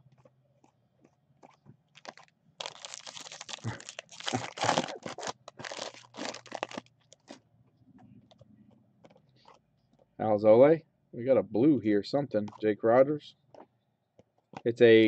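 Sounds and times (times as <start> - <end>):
foil wrapper tearing and crinkling: 1.9 - 7.4.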